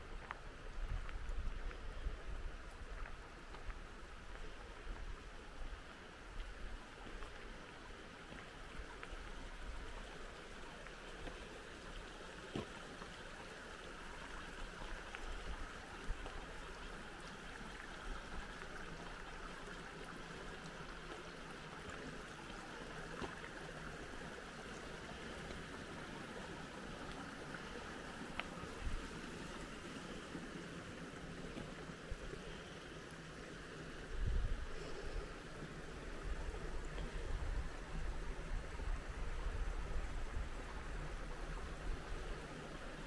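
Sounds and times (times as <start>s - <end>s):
creek water rushing: 0.0s - 43.0s
wind rumble on microphone: 0.4s - 3.8s, 34.0s - 35.3s, 36.2s - 42.4s.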